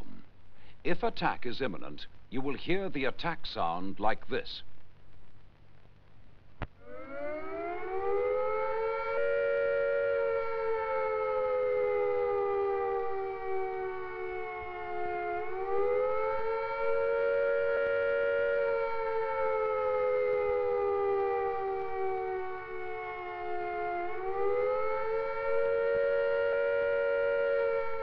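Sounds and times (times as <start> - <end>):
siren wailing: 6.8 - 28.0.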